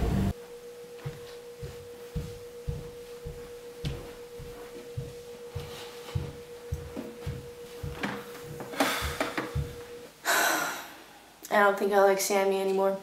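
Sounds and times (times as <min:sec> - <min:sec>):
soft low beats: 0:00.0 - 0:10.0
steady held tone: 0:00.0 - 0:11.4.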